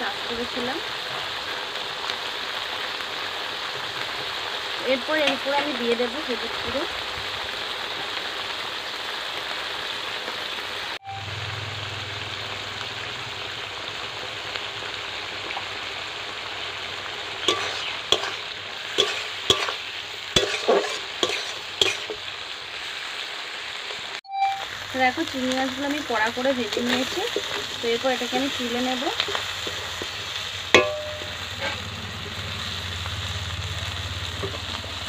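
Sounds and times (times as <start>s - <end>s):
prawns sizzling in oil: 0.0s - 35.0s
metal spatula scraping pan: 17.4s - 22.2s, 26.7s - 32.6s.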